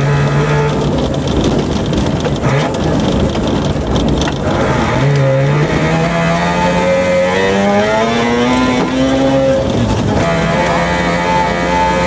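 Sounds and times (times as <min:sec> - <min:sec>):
tyres on gravel: 0:00.0 - 0:05.2
rally car engine accelerating: 0:00.0 - 0:12.0.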